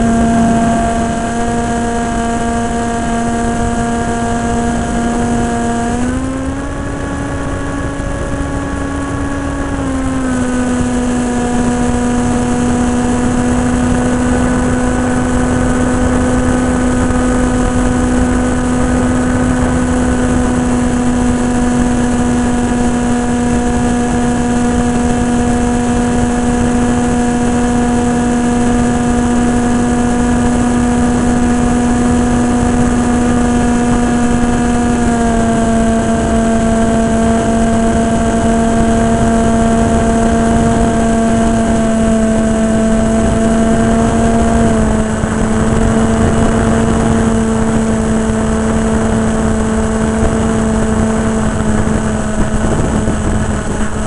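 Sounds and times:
wind rushing: 0:00.0 - 0:05.0
electric motor and propeller whining: 0:00.0 - 0:54.0.

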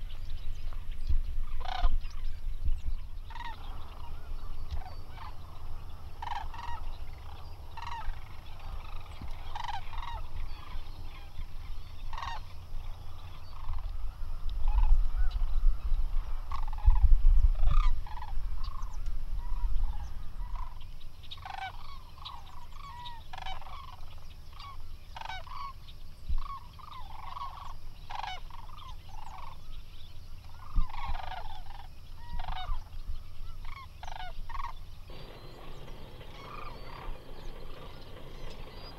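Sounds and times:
cranes calling in flight: 0:01.4 - 0:38.9
low rumble: 0:35.1 - 0:38.9.

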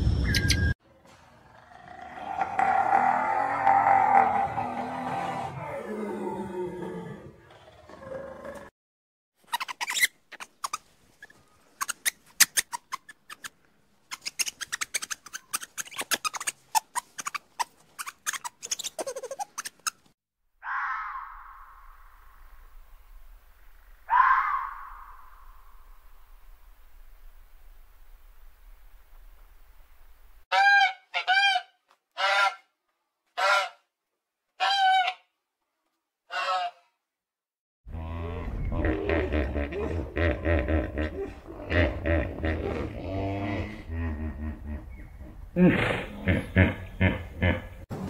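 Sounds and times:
lemurs clicking and chirping: 0:09.5 - 0:20.1.

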